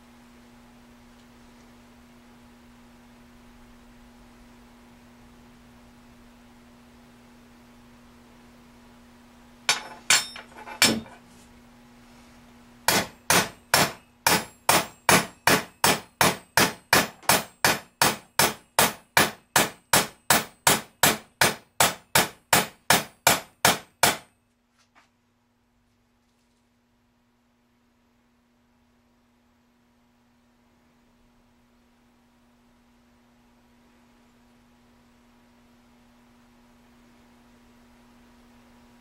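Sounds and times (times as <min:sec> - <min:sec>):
metal banging on metal plate: 0:09.7 - 0:11.2
ringing metallic strikes: 0:09.7 - 0:11.2.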